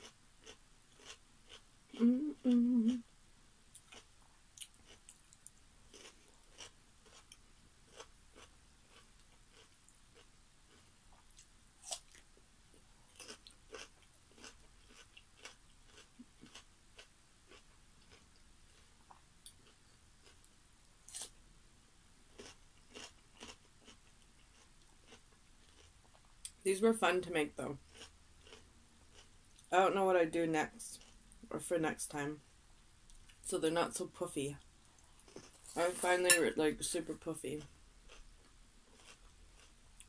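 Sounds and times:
crunching and chewing cucumber: 0.0s - 2.0s, 3.7s - 12.3s, 13.1s - 20.5s, 22.3s - 26.3s, 27.8s - 29.7s, 31.0s - 31.2s, 35.1s - 35.8s, 38.0s - 40.0s.

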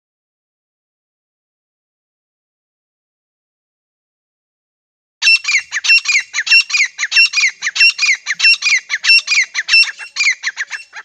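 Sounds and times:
francolin calling: 5.2s - 11.0s.

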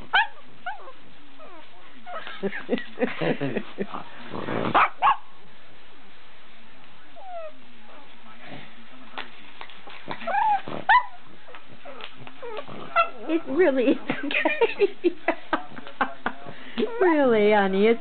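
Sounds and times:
dog whimpering and yipping: 10.2s - 11.2s.

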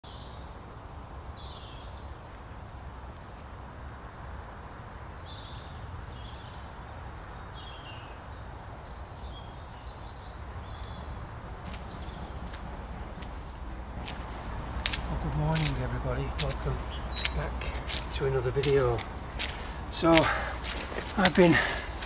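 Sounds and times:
small birds chirping: 4.2s - 22.0s
sharp clicks: 14.0s - 22.0s.

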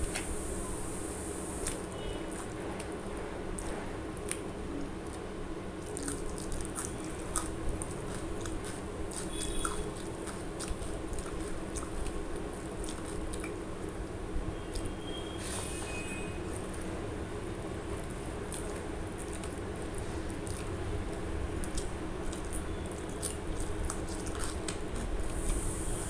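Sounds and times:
steady low hum: 0.0s - 15.3s, 16.3s - 26.0s
chewing with wet mouth clicks: 1.6s - 13.9s, 14.6s - 15.2s, 17.9s - 25.7s.

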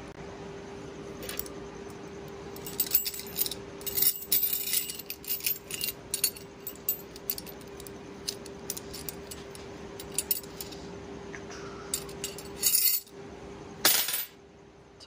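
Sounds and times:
faint hum: 0.0s - 15.0s
metal puzzle pieces clinking: 2.6s - 10.8s, 12.0s - 13.1s.

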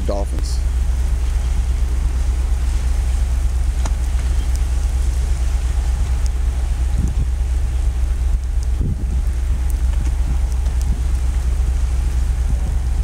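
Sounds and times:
low rumble: 0.0s - 13.0s
wind and sea hiss: 0.0s - 13.0s
faint ticks: 6.1s - 6.4s, 8.3s - 11.5s.

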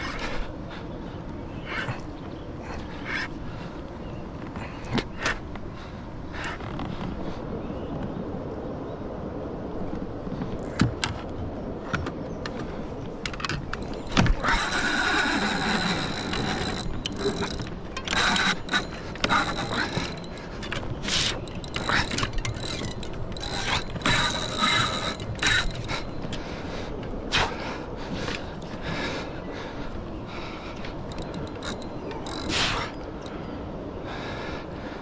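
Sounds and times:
knocks and clicks of rod handling: 11.9s - 26.4s, 31.1s - 32.5s
fishing reel drag ratcheting: 13.7s - 26.2s, 31.1s - 32.8s.

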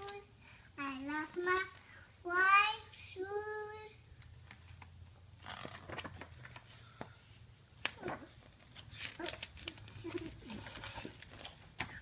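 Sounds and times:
paper pages rustling: 4.4s - 7.1s, 7.8s - 12.0s.

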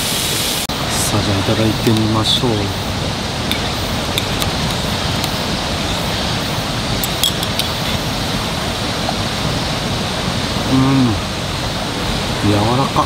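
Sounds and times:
steady rushing background noise: 0.0s - 13.0s
chopsticks clicking on metal plate: 3.5s - 5.4s, 7.0s - 7.8s.

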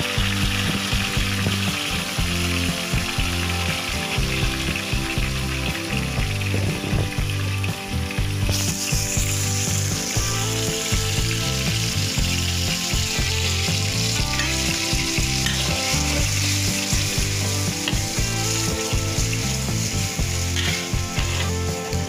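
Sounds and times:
paste sizzling in hot oil: 0.0s - 22.0s.

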